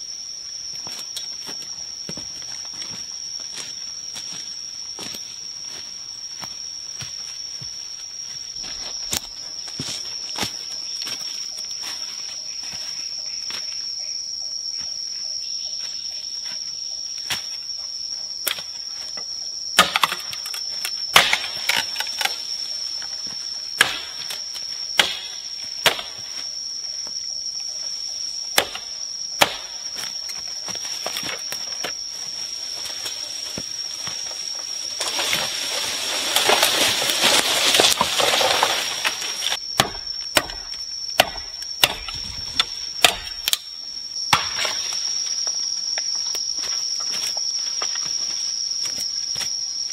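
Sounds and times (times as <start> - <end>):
high-pitched insect drone: 0.0 - 49.9
blade chopping undergrowth: 19.8 - 22.5, 23.8 - 26.4, 28.5 - 32.0, 32.8 - 43.6, 44.3 - 45.0
brush rustling: 30.7 - 39.6.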